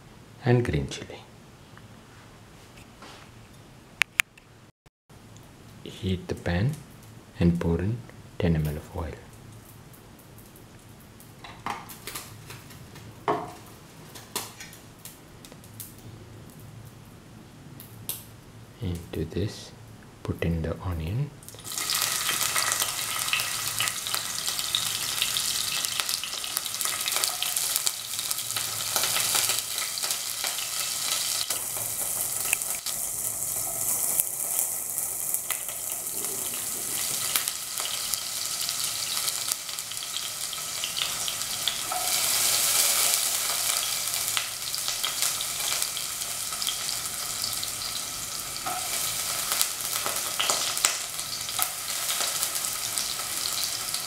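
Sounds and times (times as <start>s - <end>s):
onions sizzling in hot oil: 21.5s - 54.0s.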